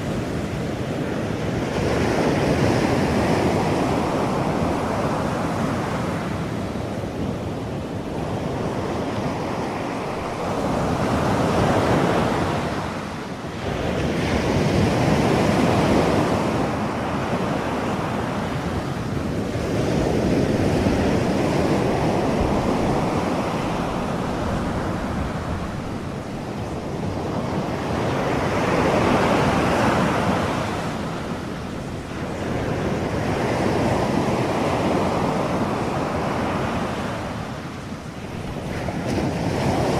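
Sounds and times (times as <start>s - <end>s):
ocean waves rushing: 0.0s - 39.9s.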